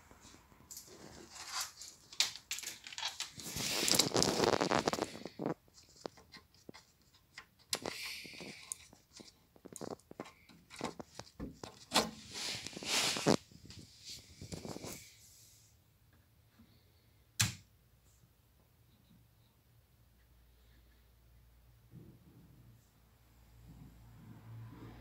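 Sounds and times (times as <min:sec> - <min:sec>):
rustling: 0:00.1 - 0:15.6.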